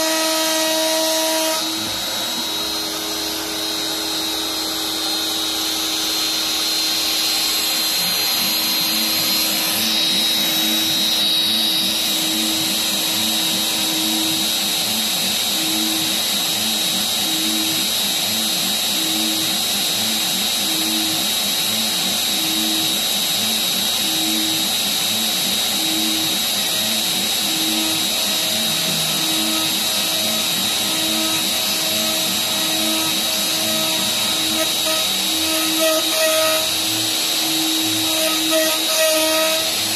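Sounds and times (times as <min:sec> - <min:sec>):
router spindle high whine: 0:00.0 - 0:39.9.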